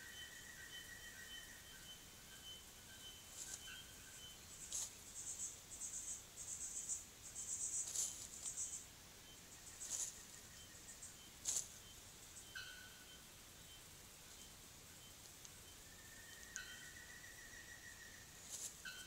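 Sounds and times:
insect trilling: 0.0 - 19.0
bird rustling leaf litter: 3.3 - 3.7, 4.5 - 5.4, 7.4 - 8.8, 9.6 - 10.4, 11.4 - 11.8, 18.4 - 18.9.

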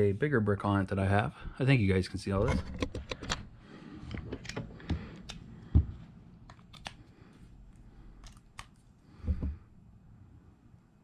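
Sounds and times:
plastic chargers clicking and knocking: 2.4 - 3.5.

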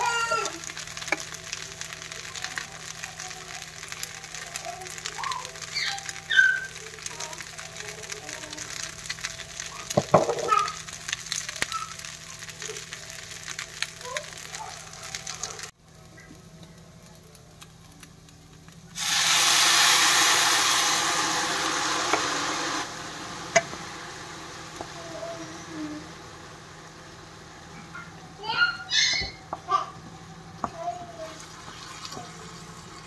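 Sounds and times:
loud sizzle in a pan: 0.0 - 33.0.

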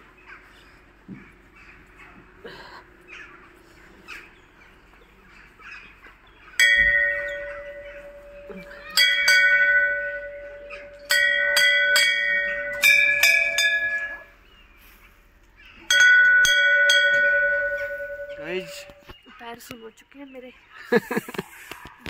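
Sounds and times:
metal bell ringing: 6.6 - 14.4, 15.9 - 19.1.

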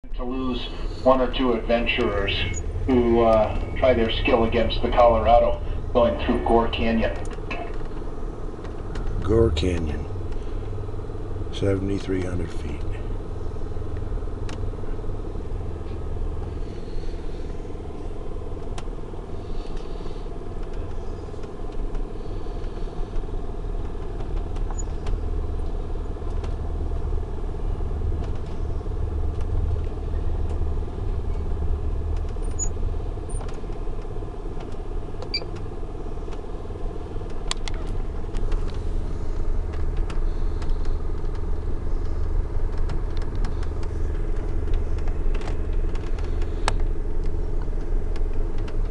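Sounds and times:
train car rumbling on rails: 0.0 - 48.9
light clicks and rattles: 28.0 - 36.6, 37.2 - 48.9.

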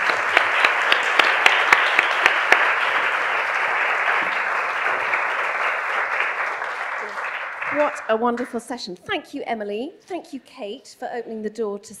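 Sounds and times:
close sharp hand claps: 0.0 - 8.6
audience applauding: 0.0 - 8.7.

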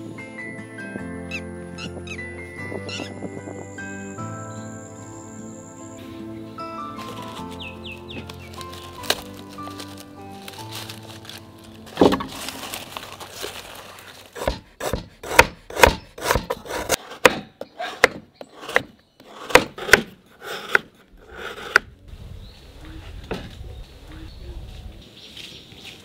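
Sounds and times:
dry leaf wrapping crackling: 6.2 - 14.6
knife chopping on wooden board: 14.4 - 21.9.

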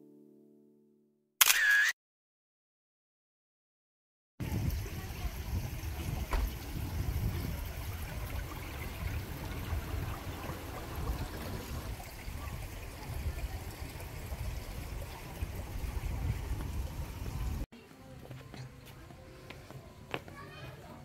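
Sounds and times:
wind buffeting microphone: 4.4 - 17.7.

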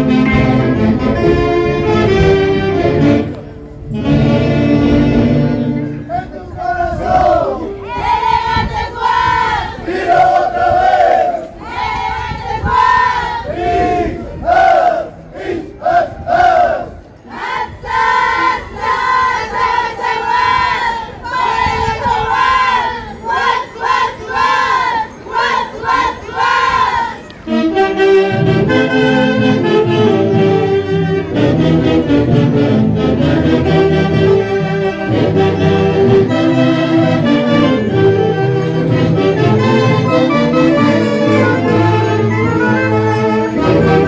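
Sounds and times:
band playing dance tune: 0.0 - 6.1, 27.5 - 44.0
group chanting in unison: 6.7 - 19.1.

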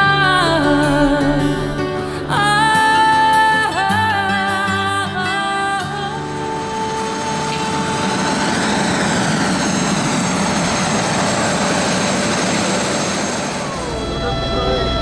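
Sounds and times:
helicopter engine and rotor: 4.7 - 15.0.

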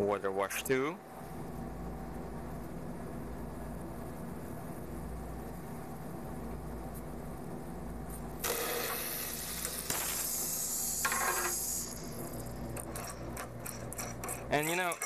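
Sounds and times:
low steady hum: 0.0 - 15.0
compressed air hissing: 8.4 - 12.6.

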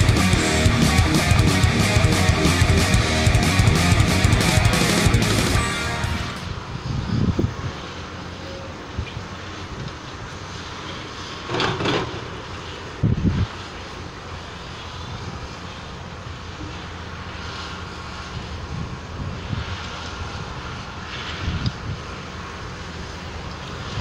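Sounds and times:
rustling burst: 0.0 - 6.8
excavator diesel engine running: 0.0 - 19.2.

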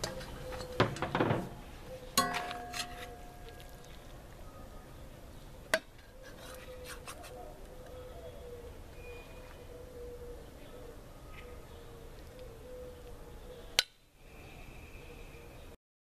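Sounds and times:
metal spoon scraping pan: 2.2 - 3.8.

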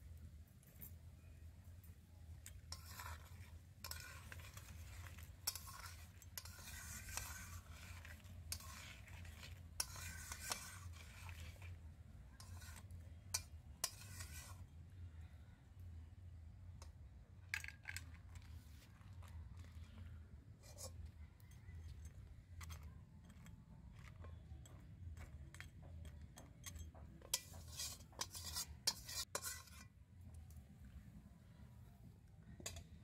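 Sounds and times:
metal spatula scraping a wok: 2.4 - 14.8, 20.6 - 30.0, 32.6 - 33.0.

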